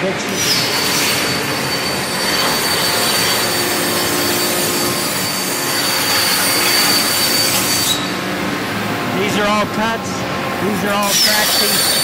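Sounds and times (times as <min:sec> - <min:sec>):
high steady whine: 0:00.0 - 0:12.0
plasma cutter hissing roar: 0:00.2 - 0:08.1, 0:10.6 - 0:12.0.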